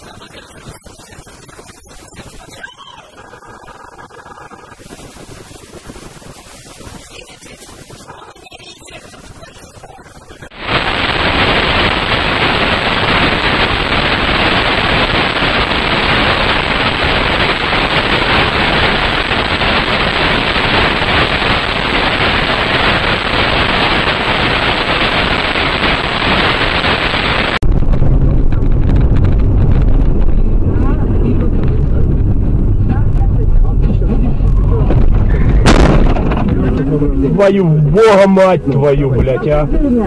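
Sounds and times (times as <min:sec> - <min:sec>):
static hiss: 0:00.0 - 0:40.0
car driving rumble: 0:27.6 - 0:38.0.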